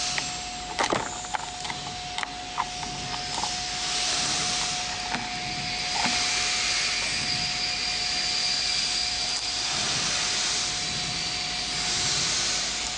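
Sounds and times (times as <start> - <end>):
cutting machine whirring: 0.0 - 10.4.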